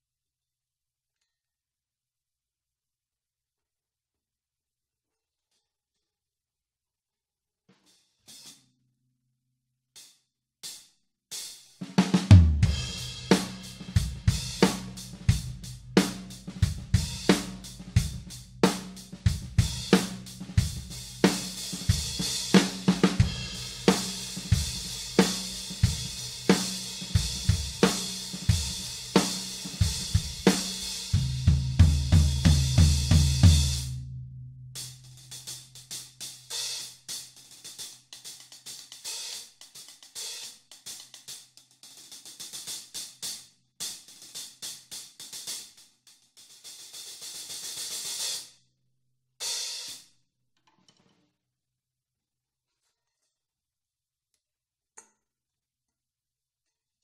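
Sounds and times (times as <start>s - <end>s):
hi-hat cymbals played with sticks: 10.0s - 33.9s, 34.8s - 48.5s, 49.4s - 50.0s
kick and snare drums: 11.4s - 34.0s
fast run of low drum hits: 12.3s - 24.8s.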